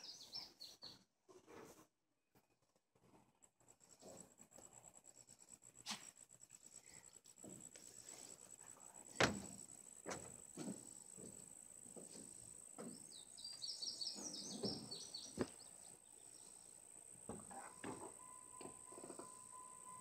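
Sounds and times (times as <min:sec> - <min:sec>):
birds chirping: 0:00.0 - 0:01.0, 0:12.0 - 0:18.8
hay bales knocking and thumping: 0:09.1 - 0:13.2.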